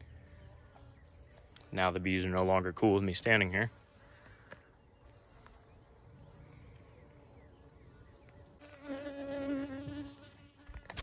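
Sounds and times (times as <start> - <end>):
bee buzzing: 5.0 - 11.0.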